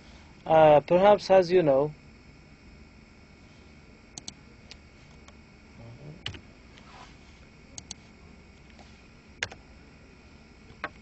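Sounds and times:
computer mouse clicks: 4.2 - 4.4, 7.8 - 8.0, 9.4 - 9.6.

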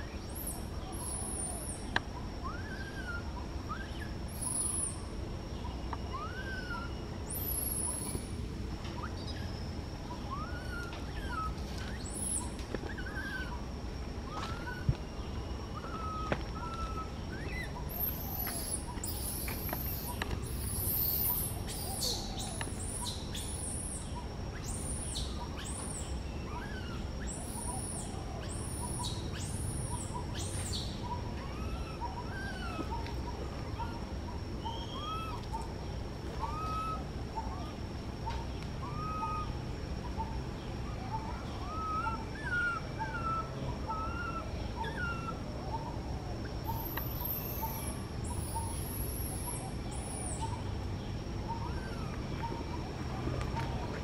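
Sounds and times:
baby monkey crying: 31.1 - 33.0, 34.6 - 35.4, 36.4 - 37.0, 38.8 - 39.5, 41.1 - 45.4.

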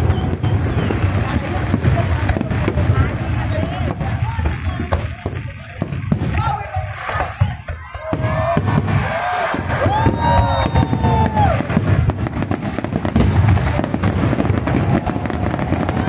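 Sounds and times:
crowd voices: 0.0 - 16.0
fireworks bangs and crackling: 0.0 - 16.0.

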